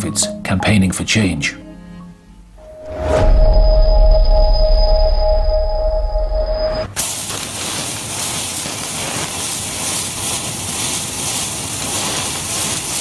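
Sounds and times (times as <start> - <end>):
matches burning hiss: 7.0 - 13.0.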